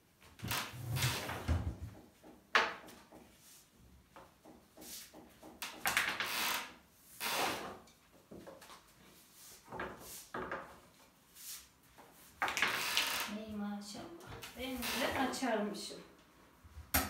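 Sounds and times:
rolling pin swishing over dough: 4.6s - 5.4s, 8.8s - 12.4s.

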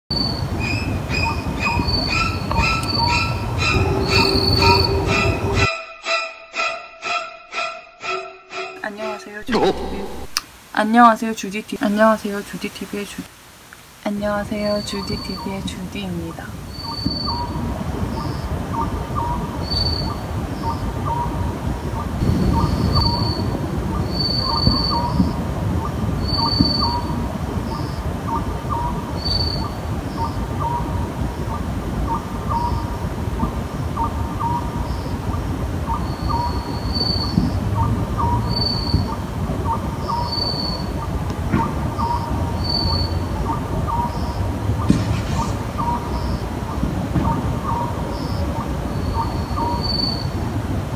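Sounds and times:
owl hooting: 1.2s - 5.7s, 9.0s - 10.4s, 22.6s - 25.4s
thin high note: 3.6s - 10.4s.

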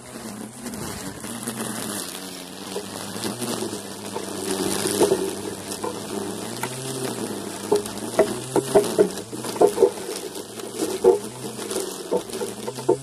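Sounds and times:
electric mower motor humming: 0.0s - 13.0s
mower knocks and clatters: 2.7s - 13.0s.

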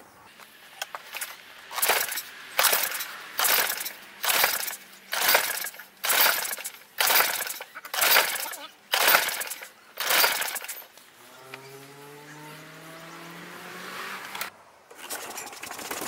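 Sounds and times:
lawn mower recoil starter pulls: 0.8s - 11.8s.

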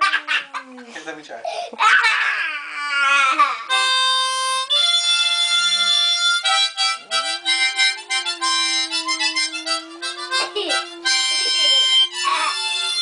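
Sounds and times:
dog howling: 0.0s - 0.9s, 1.8s - 3.4s, 7.0s - 12.9s
harmonica playing: 3.3s - 13.0s.

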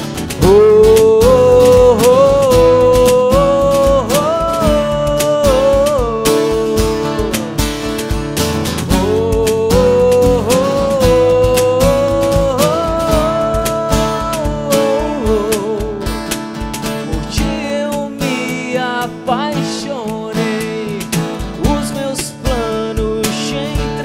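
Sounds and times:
cajon beat: 0.0s - 24.0s
strummed acoustic guitar: 0.0s - 24.0s
man singing held notes: 0.4s - 7.5s, 8.8s - 16.1s.

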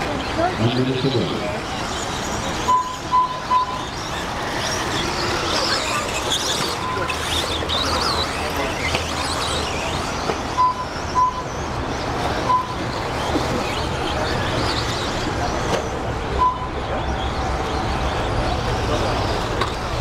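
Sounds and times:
short electronic beeps: 2.6s - 4.0s, 10.5s - 11.6s, 12.4s - 12.9s, 16.4s - 16.9s.

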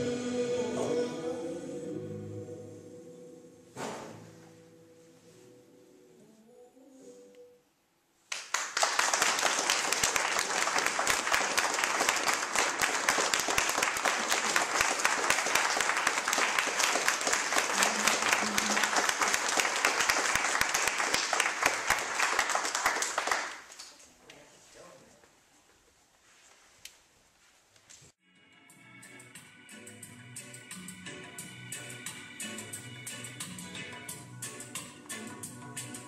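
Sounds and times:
audience applauding: 8.3s - 24.0s.

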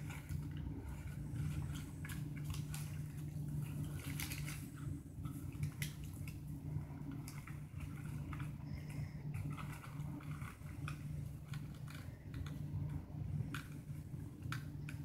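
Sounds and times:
paper and plastic wrappers crinkling: 0.0s - 12.6s
steady low hum: 0.0s - 15.0s.

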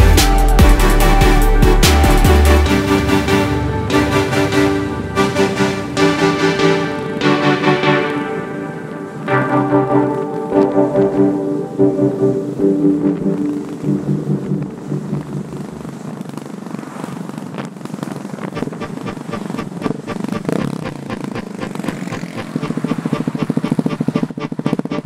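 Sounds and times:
background music: 0.0s - 16.0s
motorcycle engine running: 12.3s - 25.0s.

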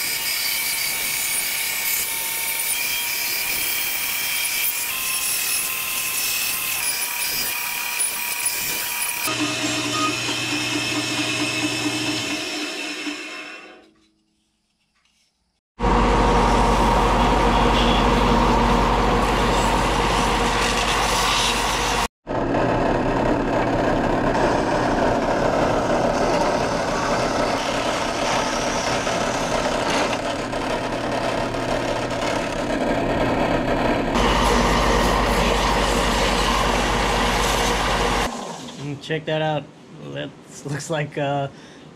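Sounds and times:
drum sander grinding wood: 7.3s - 13.8s, 15.8s - 38.3s
motor running under load: 15.8s - 38.3s.

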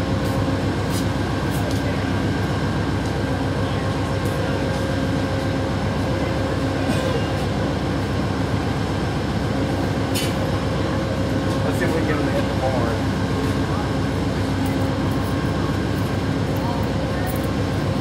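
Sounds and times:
distant diesel locomotive rumble: 0.0s - 18.0s.

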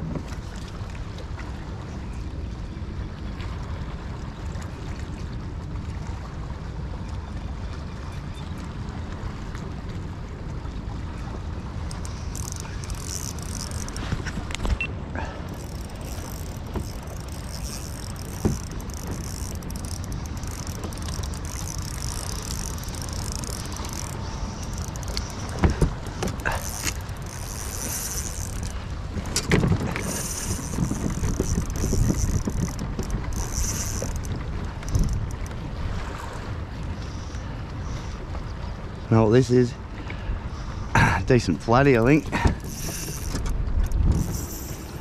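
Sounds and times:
water: 0.0s - 45.0s
wind buffeting microphone: 9.4s - 39.0s, 40.3s - 45.0s
fishing reel winding: 11.9s - 14.2s, 15.5s - 28.9s, 29.8s - 35.5s, 42.6s - 45.0s.

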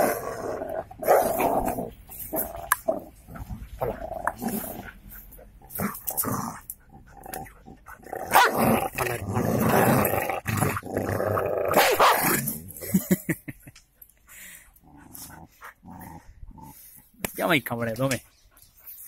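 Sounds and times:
dog growling: 0.0s - 12.8s, 14.8s - 17.0s.

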